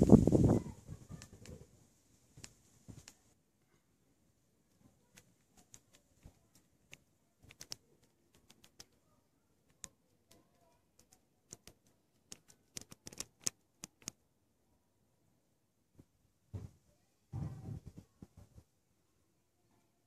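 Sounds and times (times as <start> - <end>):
faint sharp clicks and ticks: 1.0 - 1.7, 2.3 - 3.8, 4.7 - 14.2.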